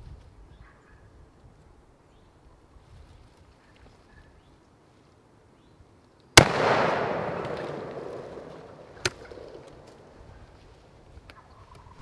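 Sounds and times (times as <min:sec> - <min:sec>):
shotgun blast echoing: 0:06.4 - 0:10.2.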